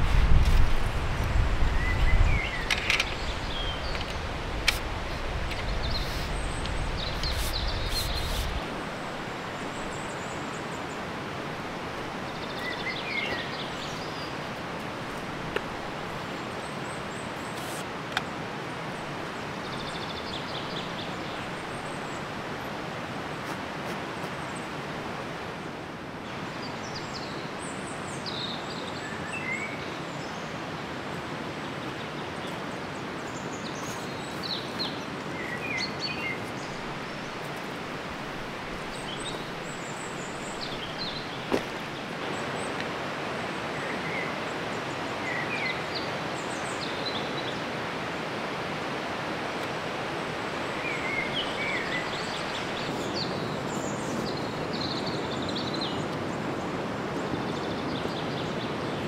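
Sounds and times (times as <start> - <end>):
river rushing: 0.0 - 59.0
birds chirping: 1.3 - 11.2, 12.0 - 22.7, 31.6 - 47.8, 50.3 - 59.0.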